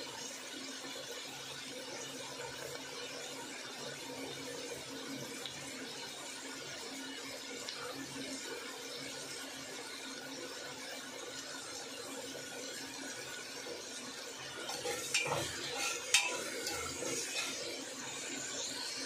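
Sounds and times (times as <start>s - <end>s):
vegetables frying in oil: 0.0s - 19.0s
spatula scraping a pot: 14.4s - 19.0s.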